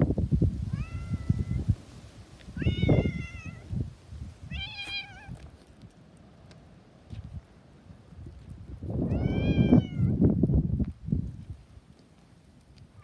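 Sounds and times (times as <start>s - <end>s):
wind gusts on microphone: 0.0s - 6.0s, 7.0s - 13.0s
cat meowing: 0.7s - 1.6s, 2.6s - 3.7s, 4.5s - 5.4s, 9.1s - 10.1s.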